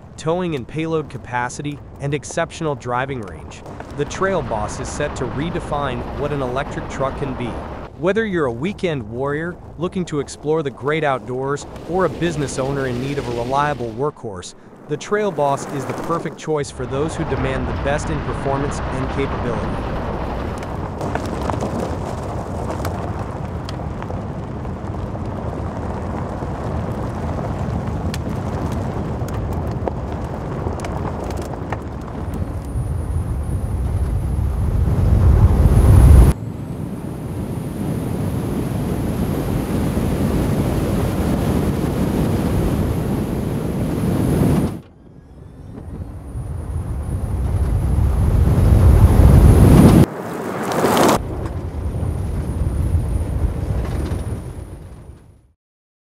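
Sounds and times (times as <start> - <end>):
wind noise: 0.0 - 55.4
tyre rumble on dirt: 19.6 - 32.6.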